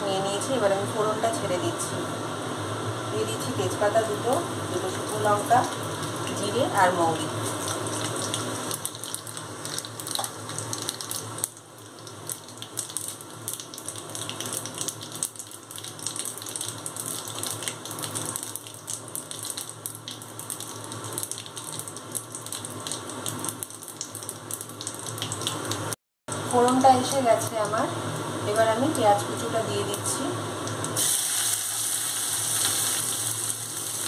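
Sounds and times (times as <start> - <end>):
spices sizzling in hot oil: 2.7 - 34.0.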